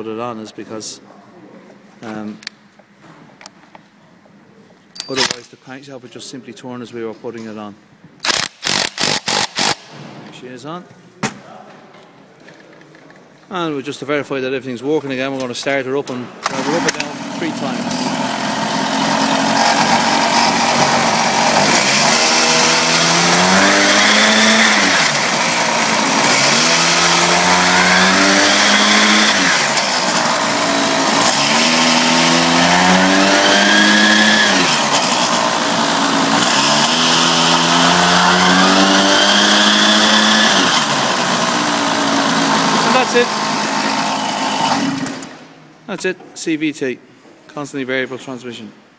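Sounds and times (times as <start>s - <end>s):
small petrol engine revving: 8.3s - 9.9s, 16.4s - 45.4s.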